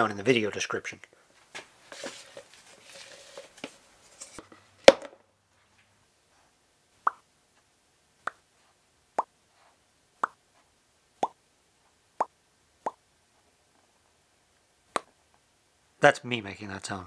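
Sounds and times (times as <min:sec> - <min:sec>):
mouth popping sounds: 0:07.0 - 0:07.3, 0:08.2 - 0:08.5, 0:09.2 - 0:09.4, 0:10.2 - 0:10.4, 0:11.2 - 0:11.4, 0:12.2 - 0:13.0, 0:14.9 - 0:15.1.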